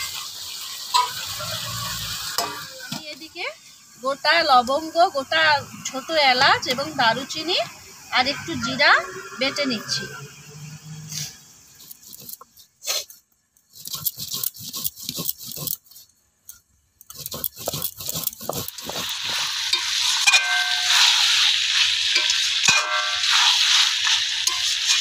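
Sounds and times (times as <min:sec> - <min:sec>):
chicken sizzling in oil: 0:00.0 - 0:12.2, 0:17.2 - 0:25.0
stone roller grinding on stone: 0:11.8 - 0:12.4, 0:13.7 - 0:16.0, 0:17.1 - 0:21.4
metal spatula scraping pan: 0:17.1 - 0:25.0.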